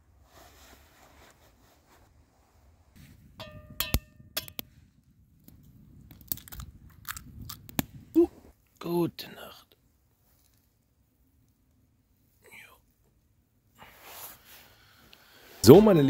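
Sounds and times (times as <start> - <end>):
metallic pot ring: 3.4 - 4.6
eggshell cracking: 5.4 - 8.0.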